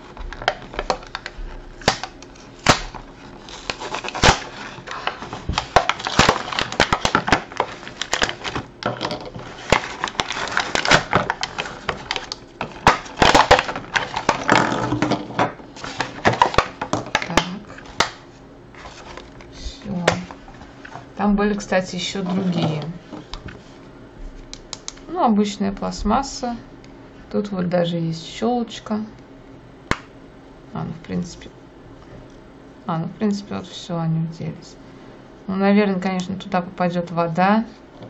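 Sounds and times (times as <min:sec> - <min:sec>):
plastic packaging crackling: 0:00.0 - 0:15.1, 0:15.8 - 0:18.2.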